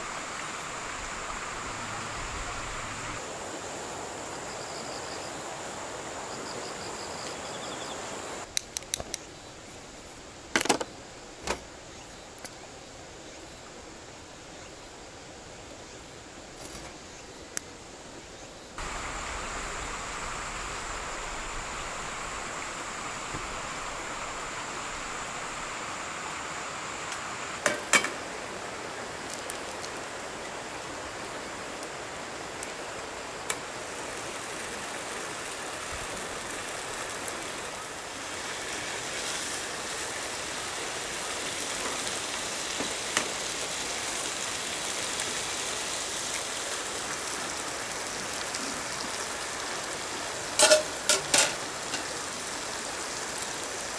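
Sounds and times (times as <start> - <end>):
bacon sizzling in pan: 33.7 - 53.9.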